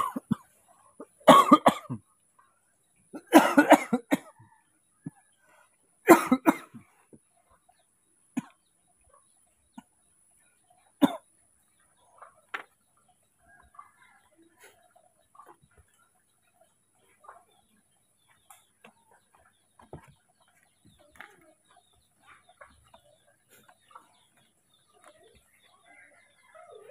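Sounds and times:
man coughing: 0.0 - 0.4, 1.2 - 2.0, 3.2 - 4.2.

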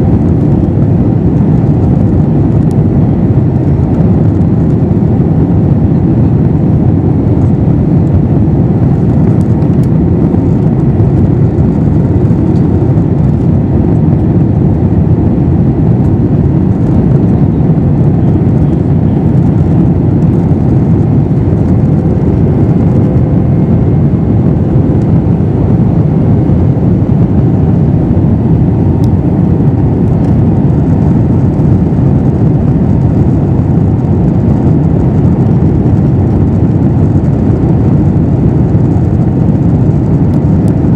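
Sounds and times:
airplane cabin engine rush: 0.0 - 40.9
faint steady hum: 0.0 - 40.9.

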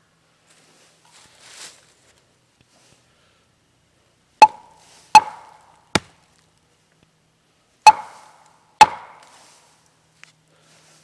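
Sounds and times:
hatchet chopping into log: 5.2 - 6.2, 7.9 - 8.2, 8.8 - 9.3.

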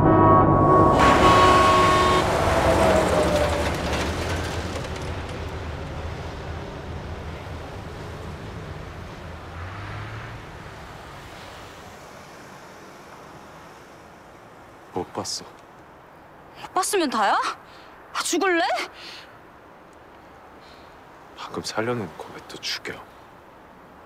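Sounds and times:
vehicle horn: 0.0 - 3.4
passing vehicle rumble: 0.0 - 14.8.

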